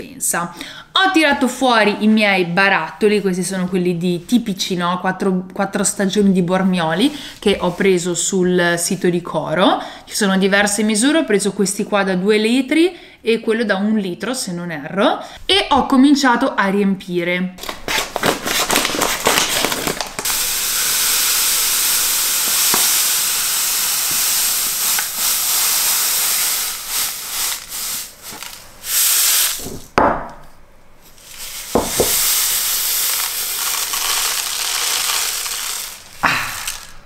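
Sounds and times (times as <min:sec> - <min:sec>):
dry grains pouring into glass jar: 0:20.2 - 0:29.6, 0:31.2 - 0:37.0.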